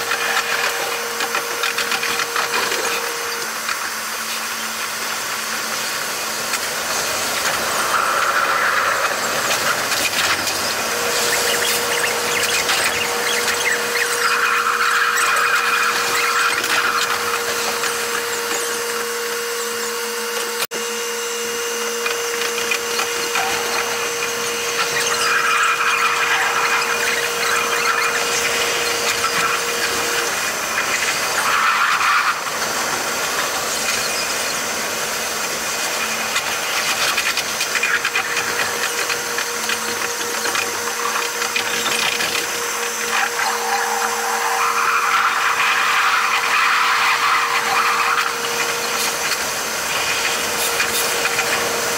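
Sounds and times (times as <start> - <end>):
sped-up train whine and hiss: 42.4 - 51.9.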